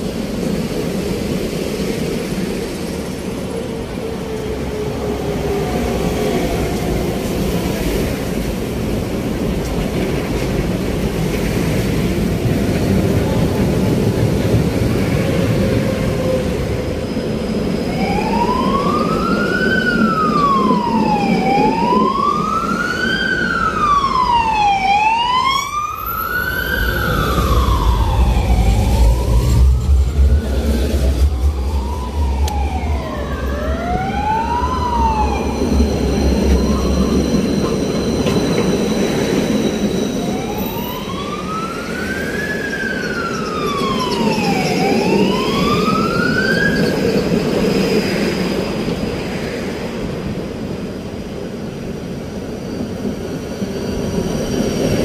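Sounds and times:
siren wailing: 17.7 - 47.1
second quicker siren wail: 17.9 - 30.2, 31.1 - 38.1
low rumble: 26.8 - 33.5.

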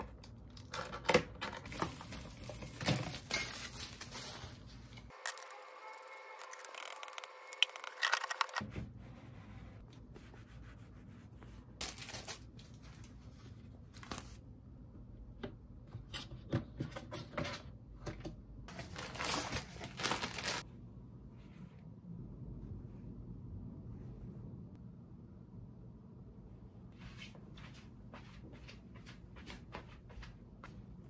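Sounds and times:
plastic wrapping rustling: 1.7 - 5.2, 11.8 - 13.2, 18.7 - 20.6.

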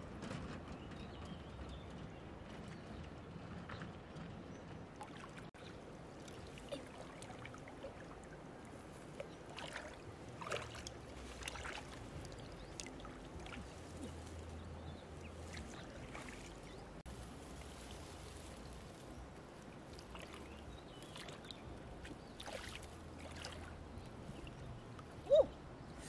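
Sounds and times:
steady water noise: 0.0 - 26.0
hands splashing in shallow water: 5.0 - 14.6, 15.2 - 25.2.

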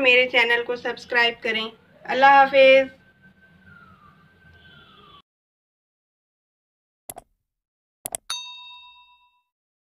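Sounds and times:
mouse click sound effects: 8.1 - 8.3
bright bell ding: 8.3 - 9.5.

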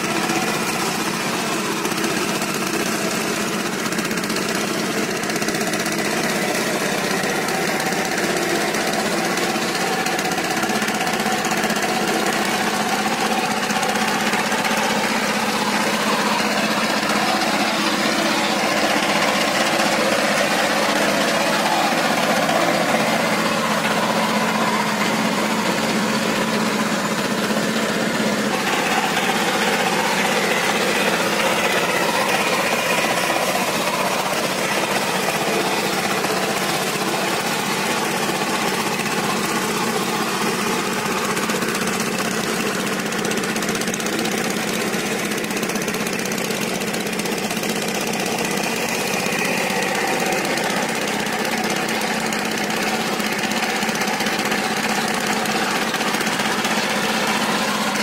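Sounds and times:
diesel engine chugging: 0.0 - 58.0.

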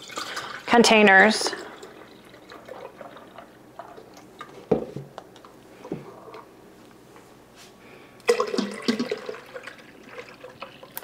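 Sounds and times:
liquid pouring through funnel: 0.0 - 4.7, 8.2 - 11.0.

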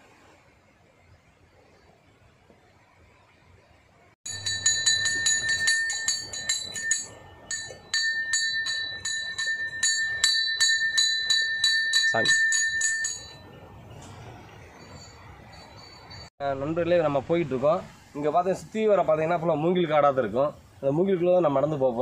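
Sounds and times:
hand bell ringing rapidly: 4.3 - 13.5, 14.8 - 16.3.

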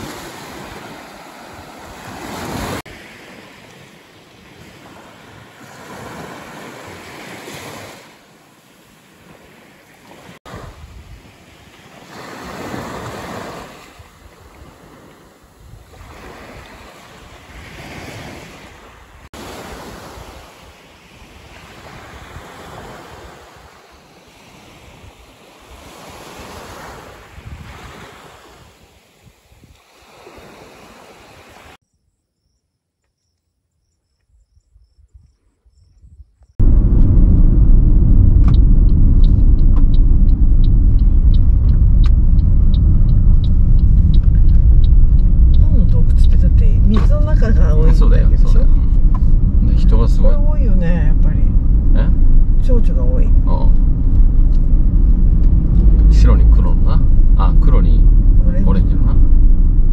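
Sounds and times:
sea waves washing on shore: 0.0 - 31.8, 36.6 - 59.9
wind buffeting microphone: 12.5 - 29.8, 34.4 - 59.9.

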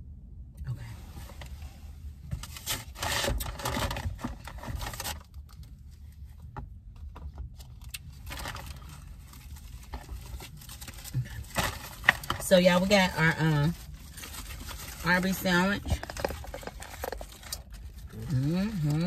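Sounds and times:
food wrappers rustling: 7.7 - 19.0.

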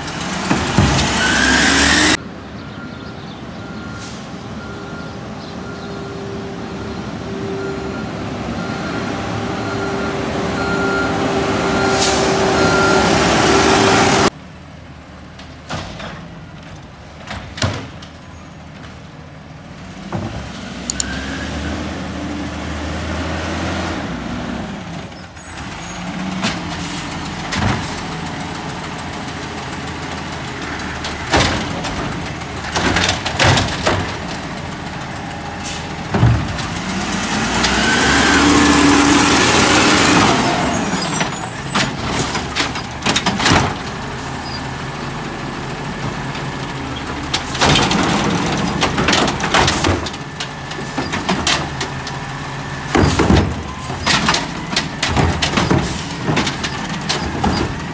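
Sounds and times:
garbage truck whine: 0.0 - 18.4, 19.2 - 57.9
clunks: 15.3 - 19.1, 25.1 - 38.0, 40.2 - 45.2, 45.8 - 57.9.

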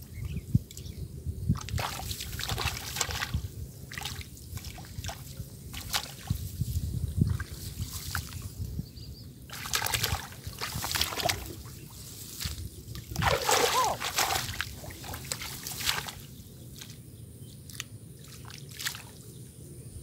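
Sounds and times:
shallow water splashing: 9.5 - 16.3.

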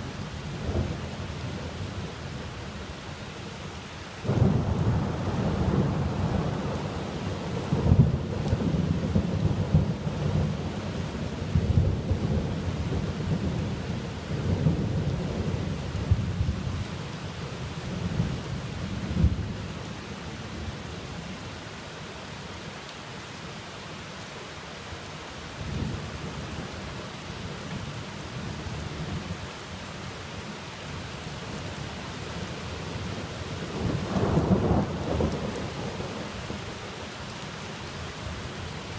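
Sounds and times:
steady rain: 0.0 - 38.9.

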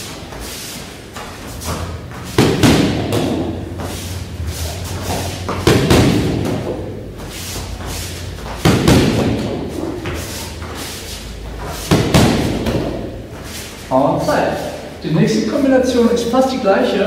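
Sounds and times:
punches and kicks hitting pads: 1.6 - 4.0, 5.0 - 7.8, 8.4 - 10.2, 11.6 - 13.2.

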